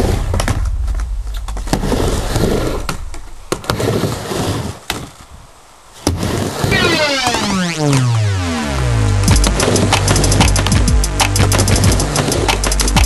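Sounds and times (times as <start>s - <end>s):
skateboard wheel rumble: 0.0s - 6.7s
skateboard clacks: 9.4s - 13.0s.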